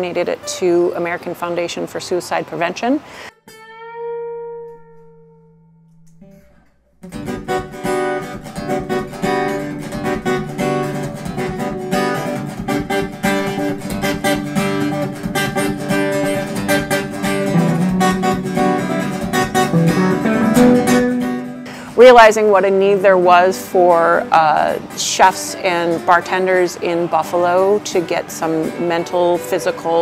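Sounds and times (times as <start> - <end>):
strummed acoustic guitar music: 3.3 - 30.0
held musical note: 17.2 - 21.7.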